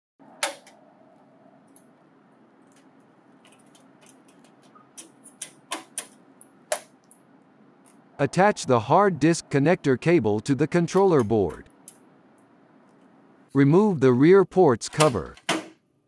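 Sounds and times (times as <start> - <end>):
faint background hum: 0.2 - 16.0.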